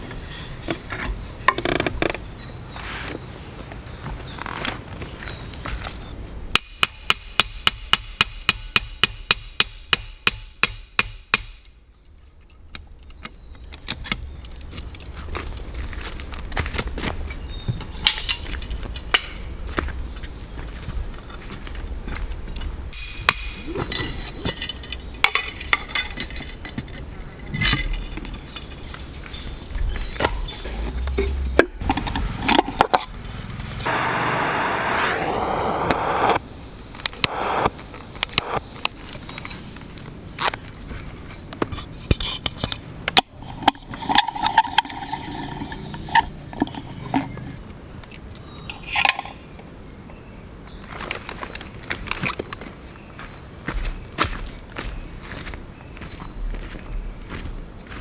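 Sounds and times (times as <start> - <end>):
hatchet striking metal stake: 6.6 - 11.8, 23.0 - 23.7
steady hiss: 33.8 - 40.4.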